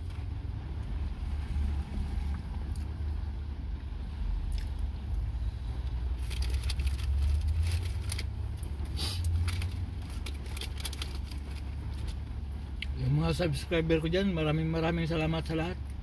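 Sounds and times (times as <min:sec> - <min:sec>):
low car rumble: 0:00.0 - 0:16.0
paper wrapper crinkling: 0:06.2 - 0:08.4, 0:09.2 - 0:12.2.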